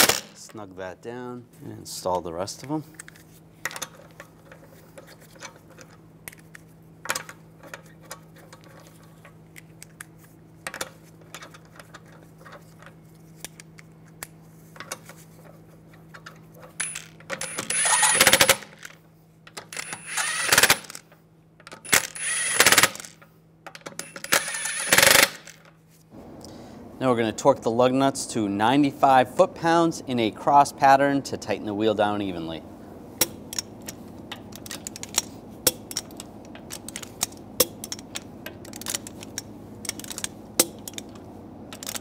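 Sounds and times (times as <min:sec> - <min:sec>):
power tool whining bursts: 0:16.8 - 0:18.9, 0:19.8 - 0:21.0, 0:21.8 - 0:23.2, 0:24.0 - 0:25.5.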